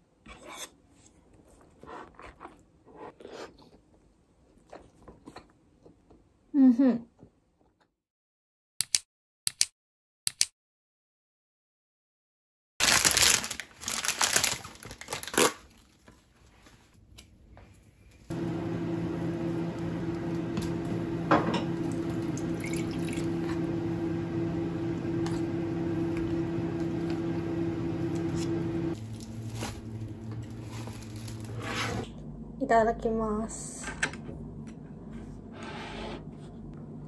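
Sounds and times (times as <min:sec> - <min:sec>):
appliance hum: 0:18.1 - 0:37.0
liquid pouring into a bowl: 0:21.8 - 0:23.4
liquid splashing and dripping: 0:21.8 - 0:23.4
rustling handling noise: 0:28.2 - 0:32.1.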